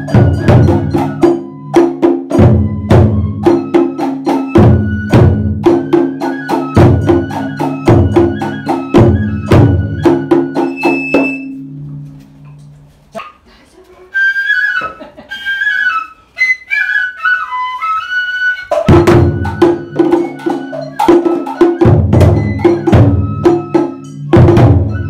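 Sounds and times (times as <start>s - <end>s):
taiko drum struck with sticks: 0.0s - 12.0s, 18.8s - 25.0s.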